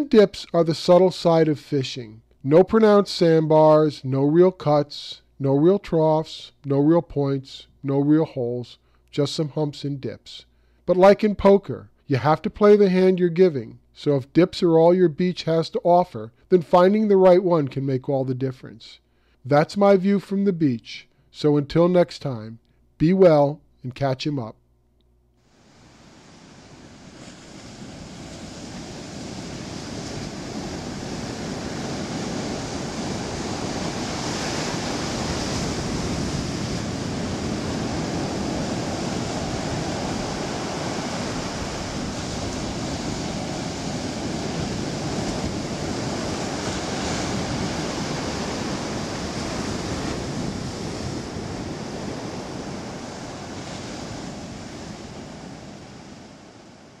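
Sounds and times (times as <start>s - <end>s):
ocean surf breaking on beach: 25.5s - 57.0s.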